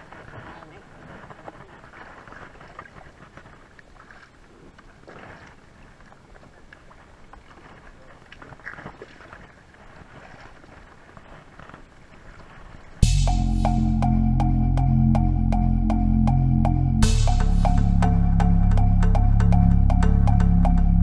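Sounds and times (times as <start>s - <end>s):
faint wind: 0.0s - 13.1s
water noise: 0.0s - 21.0s.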